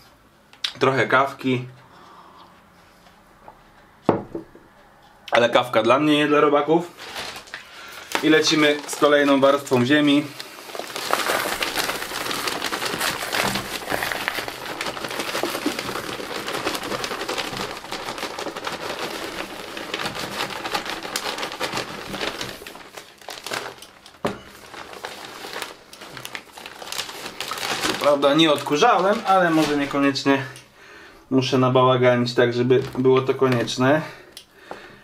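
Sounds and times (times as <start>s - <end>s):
soil pouring and rustling: 7.0s - 30.2s.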